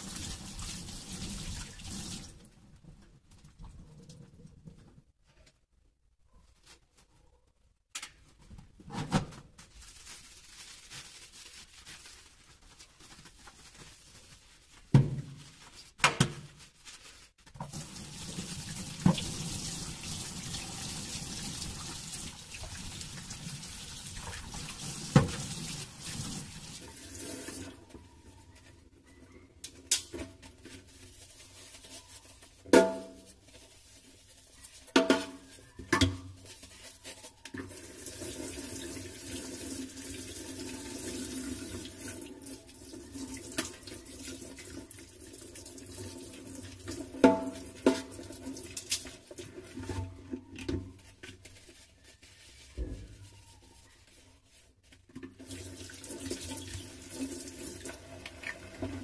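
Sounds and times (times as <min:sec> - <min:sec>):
tap water running into sink: 0:00.0 - 0:02.4, 0:17.6 - 0:27.7, 0:55.2 - 0:59.0.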